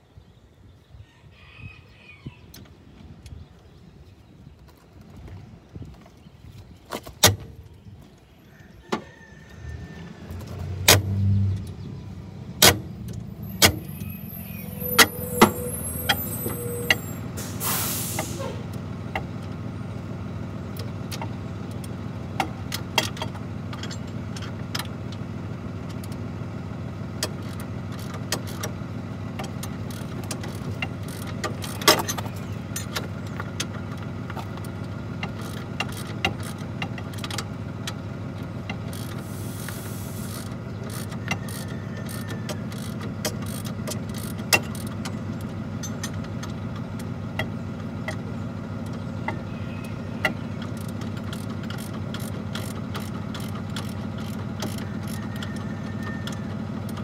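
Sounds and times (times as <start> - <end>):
diesel engine idling: 2.8 - 57.0
air brakes hissing: 13.5 - 18.7, 39.2 - 40.5
wrench clinking on metal: 23.0 - 24.6.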